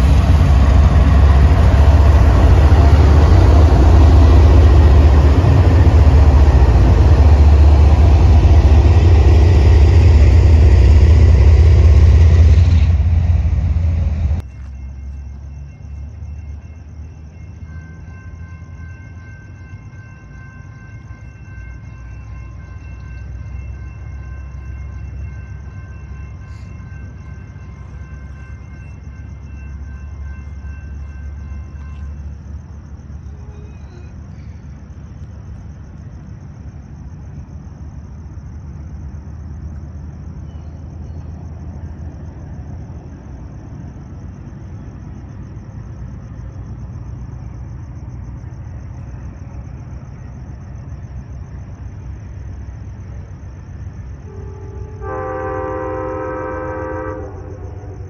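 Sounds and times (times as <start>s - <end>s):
distant train rumbling: 0.0s - 58.0s
night insects chirring: 0.0s - 58.0s
high ringing tone: 14.4s - 32.6s.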